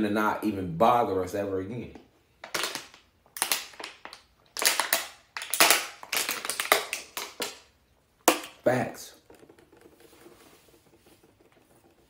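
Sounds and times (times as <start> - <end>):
plastic bottle crinkling: 2.4 - 12.0.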